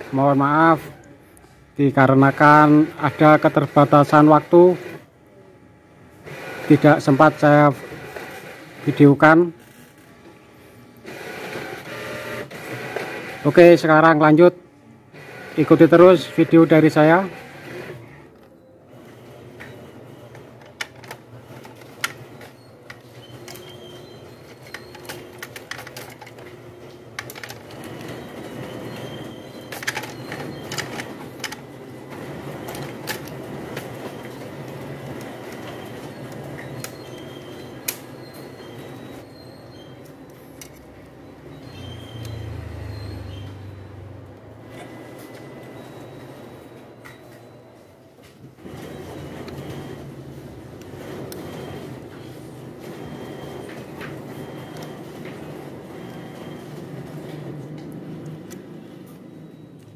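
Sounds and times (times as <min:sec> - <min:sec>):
printer parts clicking and knocking: 0:20.5 - 0:23.8, 0:24.4 - 0:28.1, 0:29.7 - 0:31.7.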